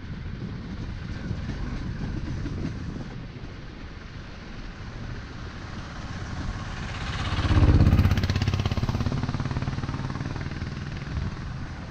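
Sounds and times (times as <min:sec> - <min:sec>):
jeep engine passing: 0:04.8 - 0:11.9
motorcycle engine running: 0:04.9 - 0:11.9.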